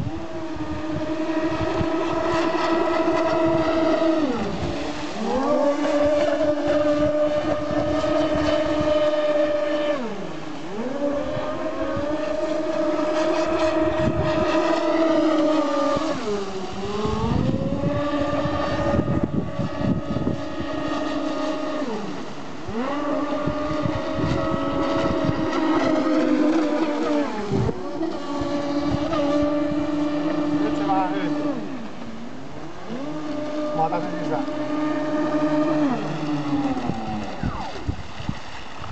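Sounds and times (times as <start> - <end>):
electric motors whining: 0.0 - 38.1.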